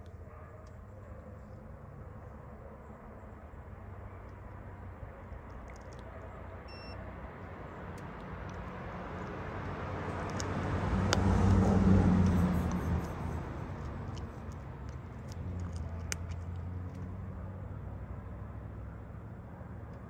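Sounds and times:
motor vehicle passing: 7.2s - 20.0s.

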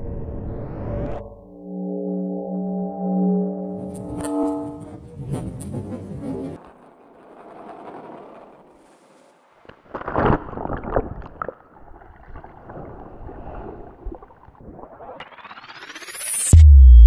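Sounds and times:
soft swell of noise: 0.0s - 5.2s.

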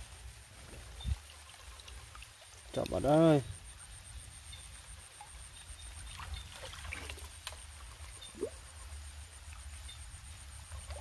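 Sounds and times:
pulsing insect trill: 0.0s - 11.0s
wading through wet grass and mud: 5.7s - 8.4s.

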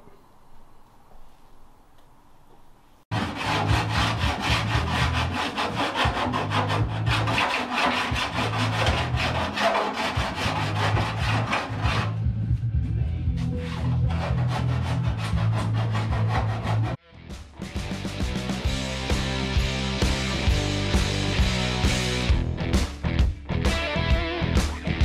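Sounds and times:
hand file scraping metal: 3.1s - 12.2s, 13.4s - 17.0s.

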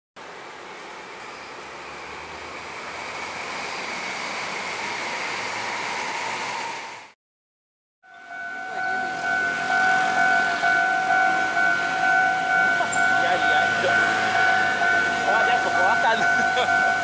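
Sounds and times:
train passing at speed: 0.2s - 7.2s, 8.2s - 17.0s
level crossing warning bell ringing: 8.0s - 17.0s.

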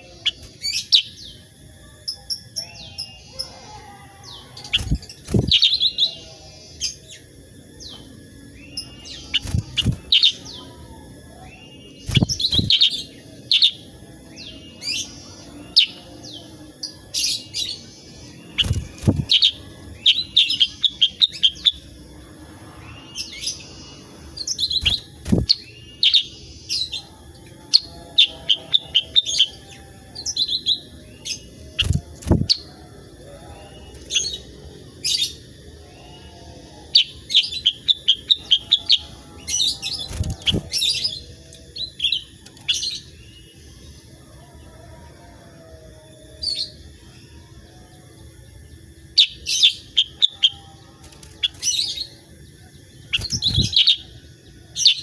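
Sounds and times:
bird chirping: 0.0s - 22.0s, 35.2s - 43.8s, 49.0s - 55.0s.

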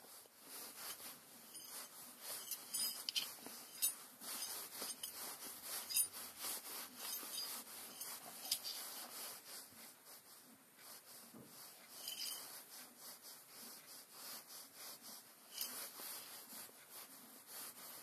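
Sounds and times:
hands rubbing on a rag: 0.0s - 18.0s
metal parts clicking and clinking: 2.4s - 5.2s, 5.8s - 6.1s, 7.0s - 8.8s, 12.0s - 12.4s.

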